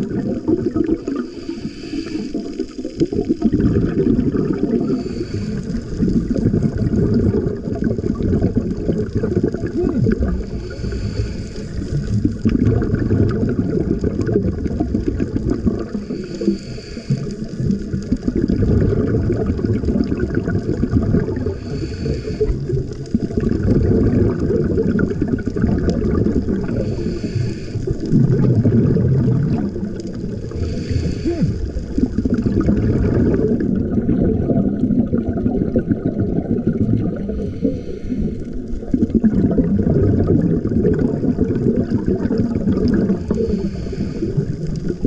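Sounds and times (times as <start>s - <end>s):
bubbling rumble: 0.0s - 45.0s
low water rumble: 0.0s - 45.0s
regulator breathing hiss: 1.1s - 2.7s, 4.9s - 6.1s, 10.4s - 12.1s, 15.9s - 17.6s, 21.6s - 22.8s, 26.6s - 28.1s, 30.4s - 32.0s, 37.2s - 38.6s, 43.2s - 44.9s.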